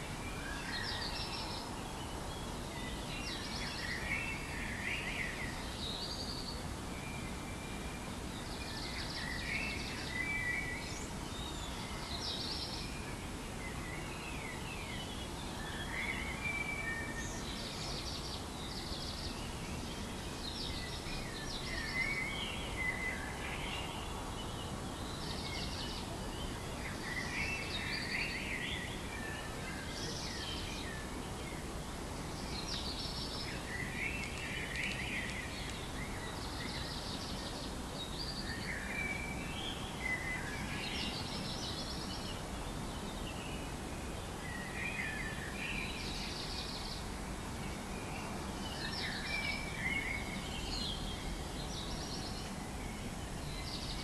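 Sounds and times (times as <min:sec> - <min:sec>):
background hiss: 0:00.0 - 0:54.0
songbirds singing: 0:00.0 - 0:54.0.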